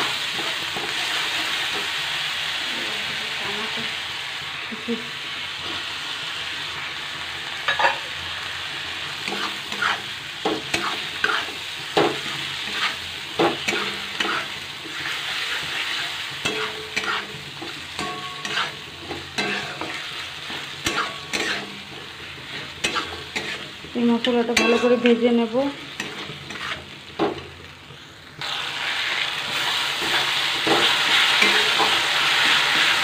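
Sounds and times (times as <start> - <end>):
tomatoes sizzling in hot oil: 0.0 - 33.0
metal spatula scraping pan: 9.2 - 23.8, 24.4 - 27.4, 29.5 - 33.0.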